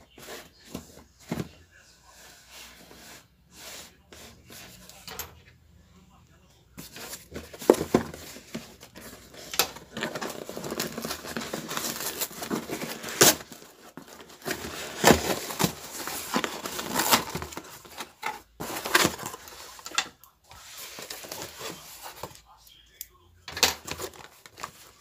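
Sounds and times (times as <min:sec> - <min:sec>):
cardboard and paper tearing: 0:06.9 - 0:20.0.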